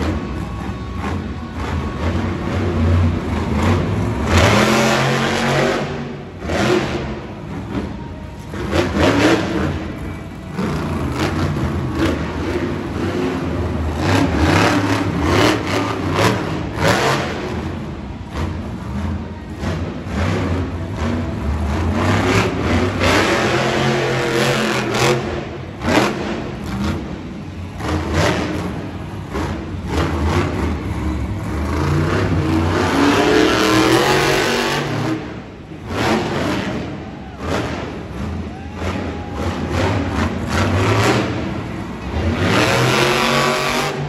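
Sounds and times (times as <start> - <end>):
truck engine revving hard: 0.0 - 44.0.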